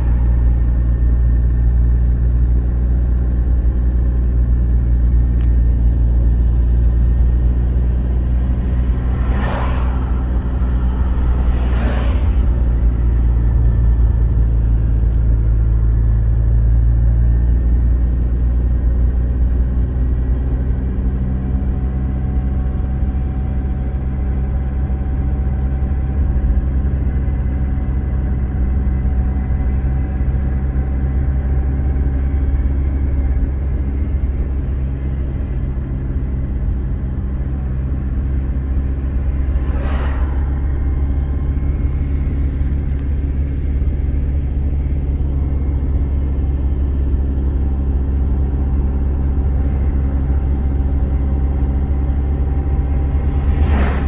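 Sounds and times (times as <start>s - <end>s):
car engine and road rumble: 0.0s - 54.0s
brief whoosh: 8.9s - 13.0s, 39.0s - 43.0s, 53.0s - 54.0s.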